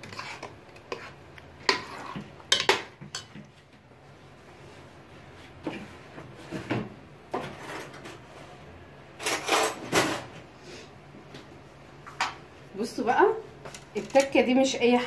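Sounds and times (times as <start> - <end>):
kitchen utensils clattering: 9.2 - 10.4.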